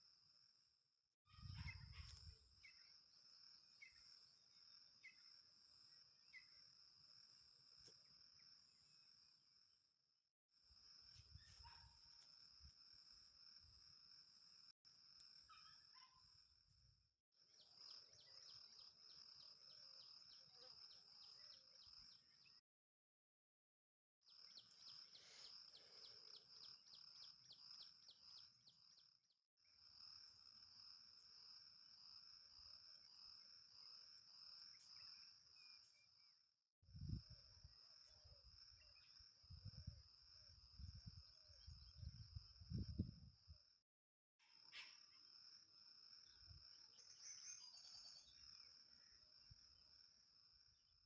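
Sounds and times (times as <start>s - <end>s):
insect drone: 0.0s - 22.6s, 24.3s - 43.8s, 44.4s - 51.0s
bird chirping: 1.3s - 3.0s, 47.0s - 48.5s
insect whine: 17.5s - 22.5s, 37.0s - 43.6s, 44.4s - 50.8s.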